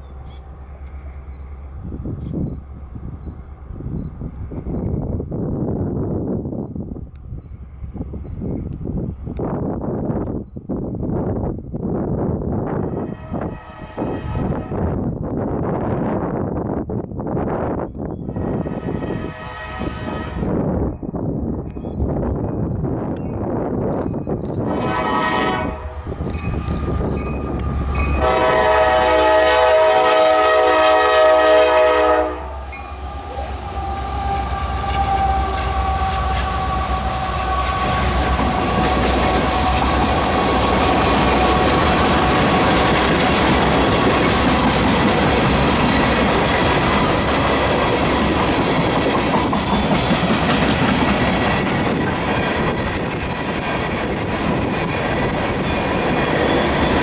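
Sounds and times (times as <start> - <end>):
train cars clickety-clack over joints: 0.0 - 13.5, 20.4 - 25.4, 26.0 - 29.9, 32.7 - 57.0
locomotive air horn: 13.0 - 15.0, 18.4 - 20.6, 24.6 - 26.0, 28.2 - 40.6.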